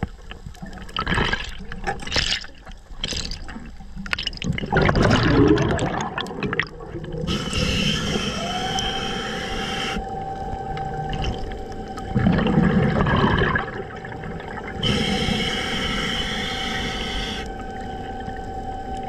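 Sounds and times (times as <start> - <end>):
exhaled bubbles rumbling: 0.0 - 19.0
steady low hum: 6.4 - 19.0
regulator hissing inhalation: 7.3 - 10.0, 14.8 - 17.5.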